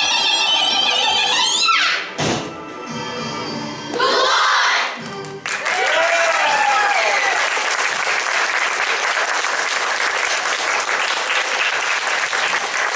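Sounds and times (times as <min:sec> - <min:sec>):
audience clapping: 0:05.0 - 0:12.9
people cheering: 0:05.6 - 0:12.9.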